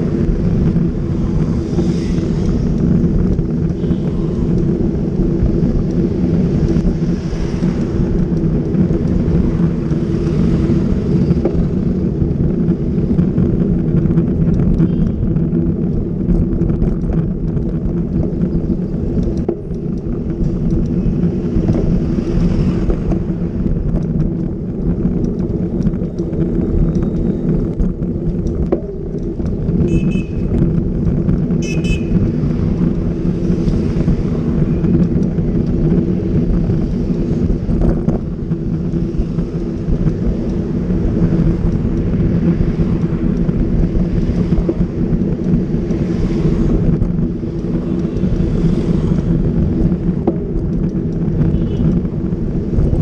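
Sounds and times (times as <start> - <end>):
wind and road noise rumble: 0.0 - 53.0
horn tooting: 29.9 - 30.6, 31.6 - 32.2.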